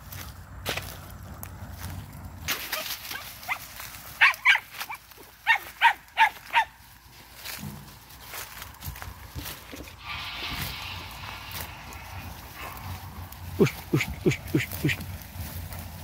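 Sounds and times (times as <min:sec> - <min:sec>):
rustle of brush: 0:00.0 - 0:16.0
dog barking high-pitched: 0:03.5 - 0:04.7, 0:05.4 - 0:06.8.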